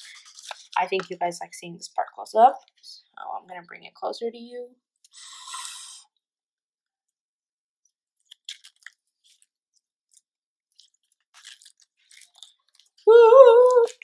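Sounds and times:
sticky slime crackles and pops: 8.2s - 9.4s
person singing a high note: 13.1s - 14.0s.

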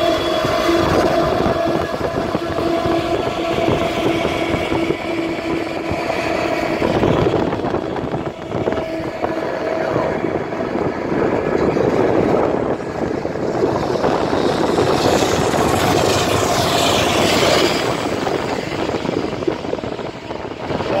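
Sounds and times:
diesel locomotive engine throbbing: 0.0s - 21.0s.

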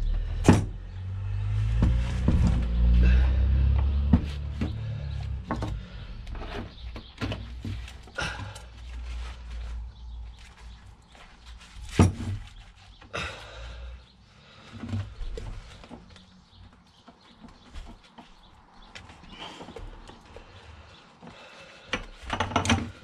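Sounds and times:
metal parts knocking and scraping: 21.9s - 23.0s.

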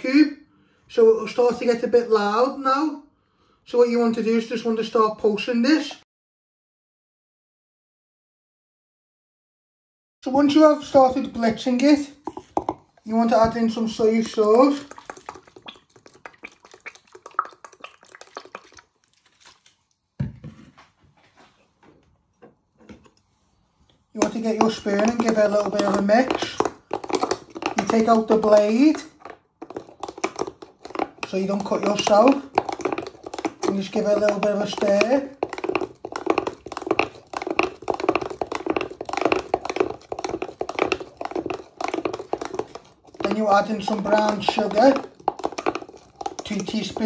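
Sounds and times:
sauce dripping and glugging: 12.2s - 20.2s, 24.2s - 47.0s.

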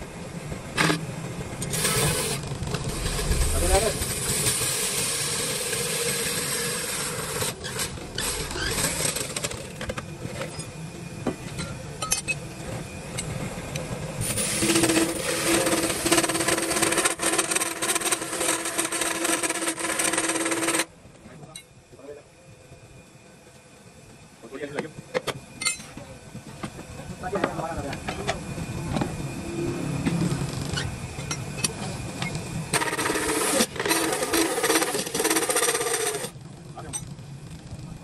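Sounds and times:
steady machine hum: 0.0s - 38.0s
woodworking tools scraping and rattling: 14.3s - 20.9s, 32.8s - 37.1s.

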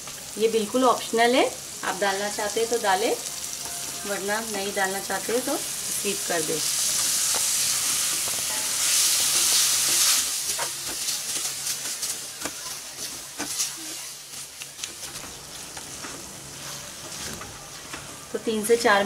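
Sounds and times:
food sizzling in a metal pan: 0.0s - 19.0s
spatula scraping and tapping pan: 6.9s - 18.1s.

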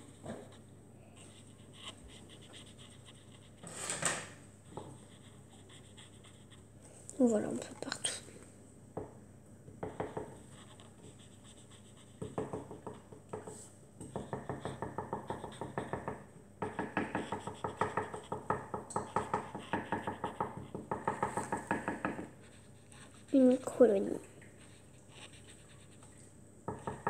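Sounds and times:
marker scratching on paper: 0.0s - 6.7s, 10.0s - 13.6s, 14.2s - 15.9s, 17.2s - 24.0s, 24.6s - 26.0s.

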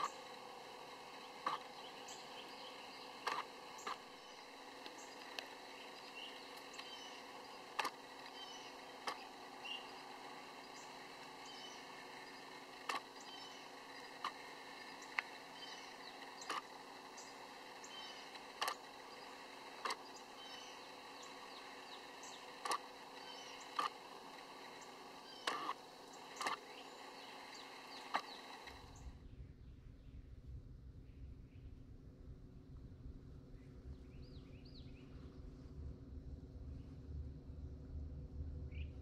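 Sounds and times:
steady outdoor hiss: 0.0s - 39.0s
faint bird chirps: 1.2s - 16.6s, 17.2s - 18.4s, 19.1s - 24.0s.

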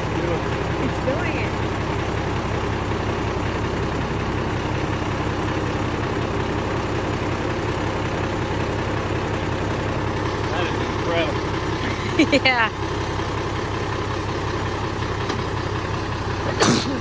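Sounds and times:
diesel engine running at low revs: 0.0s - 17.0s.

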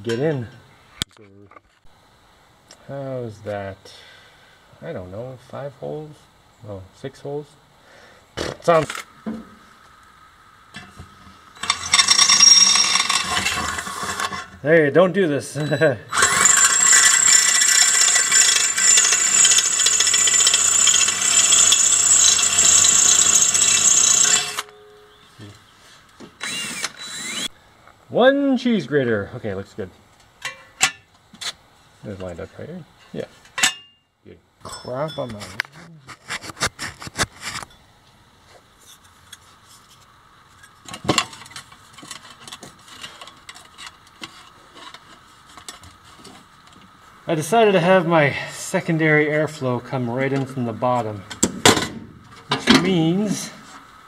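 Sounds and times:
cordless drill whining through metal: 11.6s - 14.4s, 16.1s - 24.8s, 26.4s - 27.6s.

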